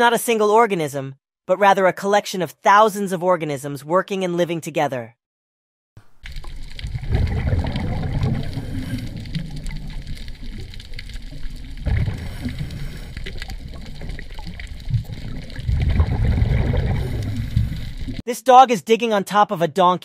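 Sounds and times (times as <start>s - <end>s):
muffled underwater rushing rumble: 6.4s - 18.2s.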